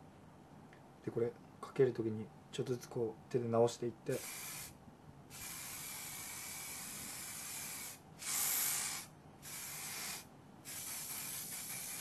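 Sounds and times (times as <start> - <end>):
aerosol hairspray hissing: 4.2 - 4.7, 5.3 - 12.0.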